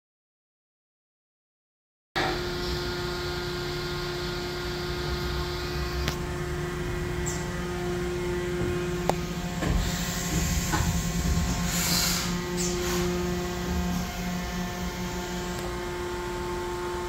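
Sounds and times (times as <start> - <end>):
machine hum with steady tones: 2.2 - 17.0
coolant spray hiss: 9.7 - 14.0.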